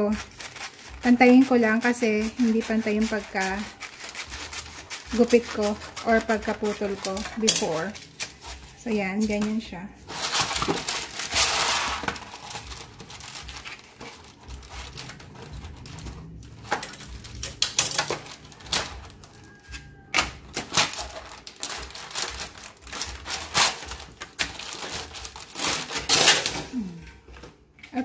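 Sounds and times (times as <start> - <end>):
kitchen shears clicking and snipping: 0.0 - 8.6, 16.6 - 26.8
parchment paper rustling on metal: 0.0 - 27.2.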